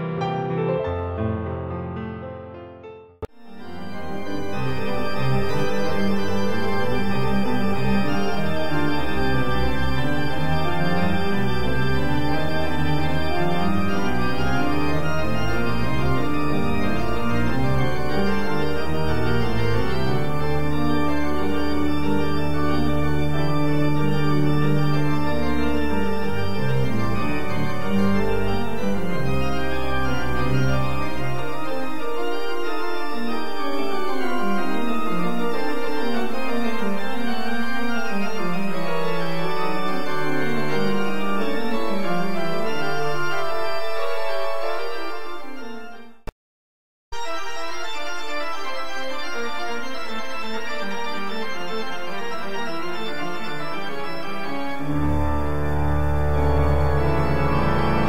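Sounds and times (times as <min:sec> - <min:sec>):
organ music: 0:03.2 - 0:46.3, 0:47.2 - 0:58.0.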